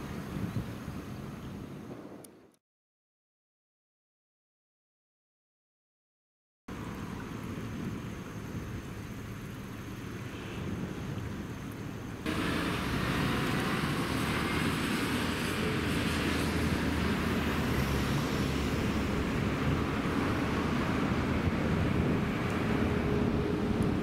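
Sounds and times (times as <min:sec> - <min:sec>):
road traffic passing: 0:06.7 - 0:24.0.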